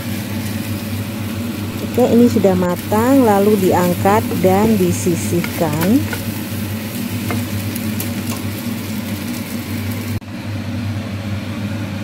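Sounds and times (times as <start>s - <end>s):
oil sizzling in a frying pan: 0.0s - 10.2s
steady low hum: 1.0s - 8.3s.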